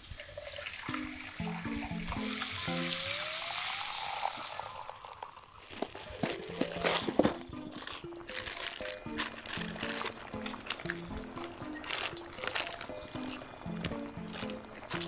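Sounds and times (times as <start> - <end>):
tap water filling a bowl: 0.0 - 5.5
water poured into hot wok: 0.0 - 5.6
soft background music: 0.0 - 15.0
packet crinkling: 5.0 - 15.0.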